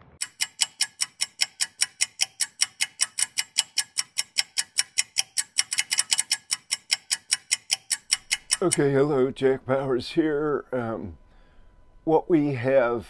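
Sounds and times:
clock ticking: 0.1 - 9.8.

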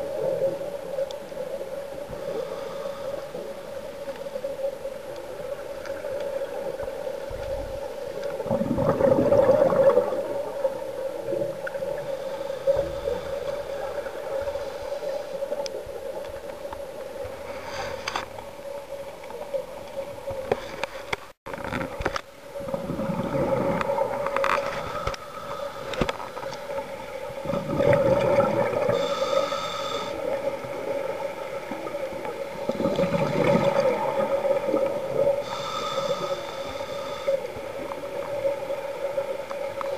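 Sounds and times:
bubbles gurgling underwater: 8.4 - 12.0, 22.6 - 24.4, 27.3 - 29.0, 30.4 - 35.4.

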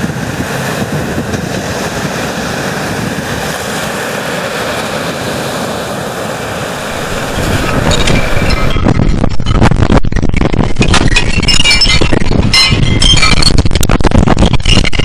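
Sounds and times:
wind buffeting microphone: 0.0 - 15.0
waves washing up pebble beach: 1.6 - 8.8.

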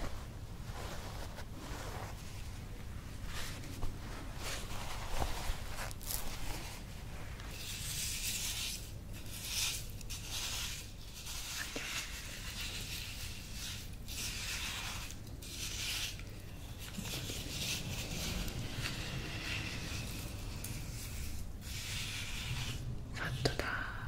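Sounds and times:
gritty scraping in glass bowl: 11.4 - 22.9.

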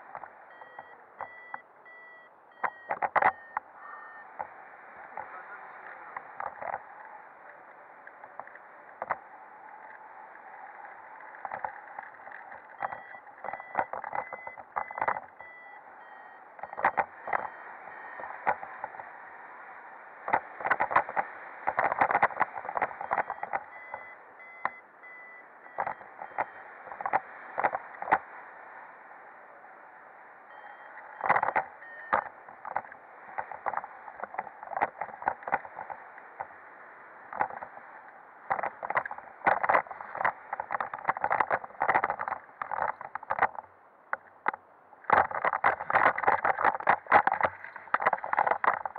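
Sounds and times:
wind buffeting bumps: 31.0 - 48.9.

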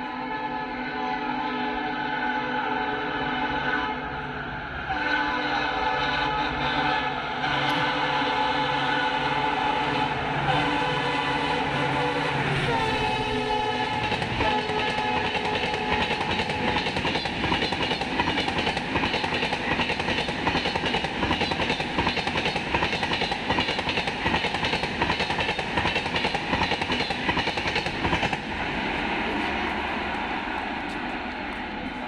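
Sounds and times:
train horn: 0.0 - 18.3
train wheels clattering over rail joints: 13.9 - 28.4.

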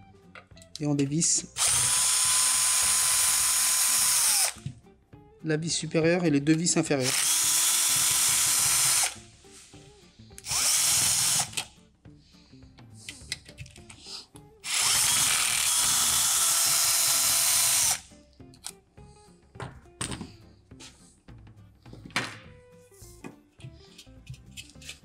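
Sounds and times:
cordless drill whine: 1.6 - 4.6, 7.0 - 9.2, 10.4 - 11.6, 14.6 - 18.0.

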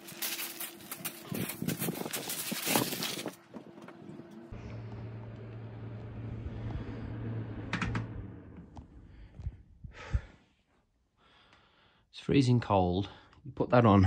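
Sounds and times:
fan heater humming: 0.1 - 9.4.

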